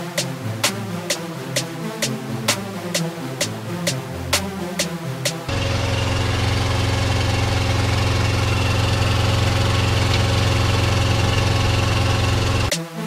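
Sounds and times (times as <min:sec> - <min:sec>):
engine idling: 0:05.5 - 0:12.7.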